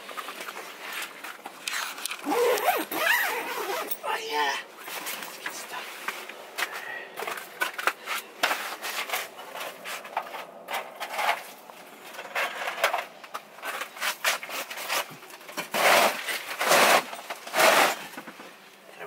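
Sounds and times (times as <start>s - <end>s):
fabric rubbing and rustling: 0.0s - 4.0s, 13.6s - 18.7s.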